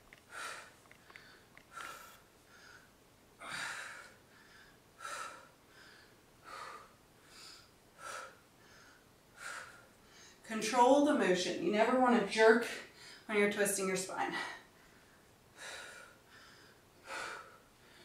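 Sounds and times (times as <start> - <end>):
woman breathing hard: 0.2 - 10.5, 14.4 - 18.0.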